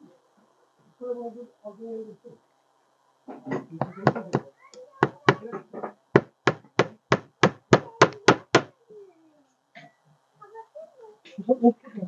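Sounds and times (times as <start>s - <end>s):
hammer tapping a nail into wood: 6.2s - 8.7s.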